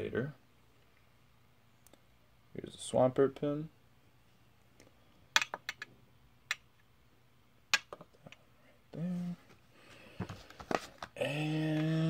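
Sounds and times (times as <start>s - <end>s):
soft plastic rustle: 9.3s - 11.2s.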